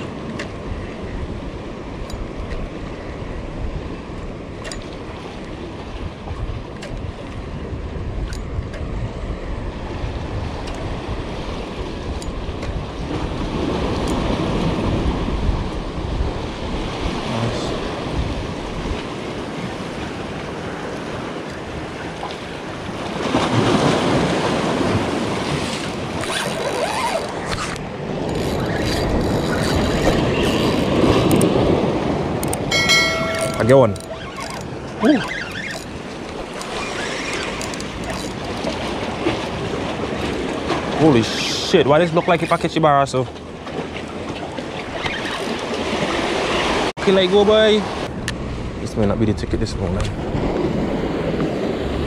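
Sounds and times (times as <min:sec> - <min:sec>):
wind buffeting microphone: 0:00.0 - 0:41.4
waves splashing against rocks: 0:00.0 - 0:48.8.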